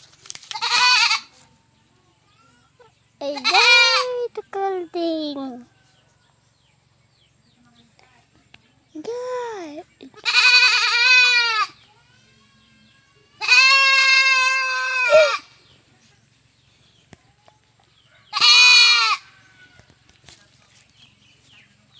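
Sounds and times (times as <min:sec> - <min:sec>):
goat bleating: 0:00.5 - 0:01.3, 0:03.2 - 0:04.2, 0:10.1 - 0:15.6, 0:18.3 - 0:19.3.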